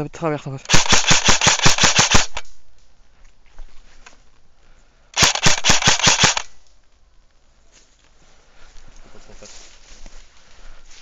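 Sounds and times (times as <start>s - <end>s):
airsoft rifle firing bursts: 0.7s - 2.5s, 5.2s - 6.6s.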